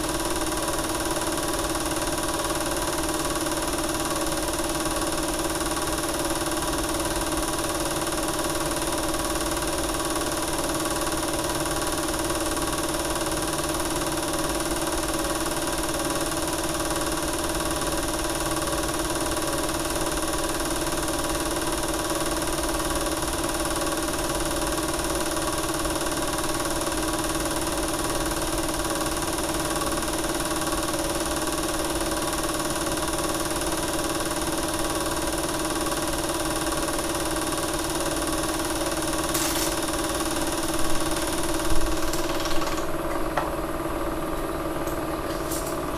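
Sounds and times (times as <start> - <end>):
film projector running: 0.0 - 45.9.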